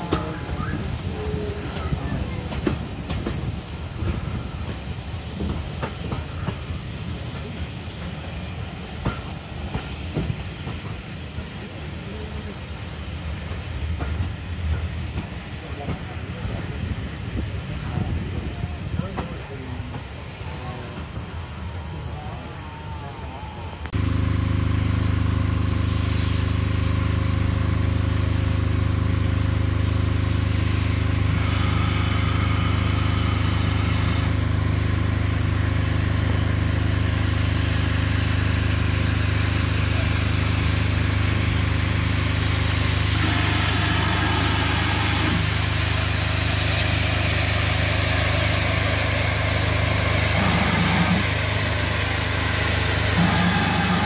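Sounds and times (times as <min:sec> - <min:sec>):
steam hissing from locomotives: 0:00.0 - 0:23.9, 0:24.5 - 0:54.0
low engine drone: 0:19.5 - 0:54.0.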